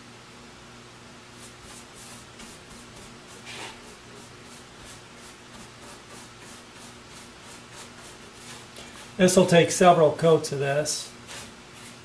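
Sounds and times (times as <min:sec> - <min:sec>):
brush swishing on wood: 0:01.4 - 0:09.6, 0:11.0 - 0:12.0.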